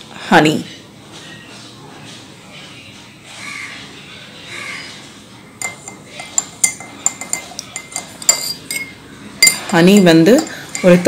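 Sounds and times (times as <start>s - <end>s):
spoon clinking against cup: 5.6s - 11.0s.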